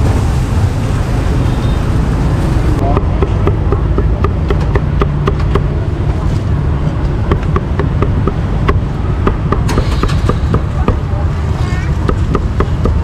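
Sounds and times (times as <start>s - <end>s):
low rumble of traffic: 0.0s - 13.0s
cleaver chopping on wooden block: 2.9s - 5.7s, 7.3s - 11.0s, 12.0s - 13.0s.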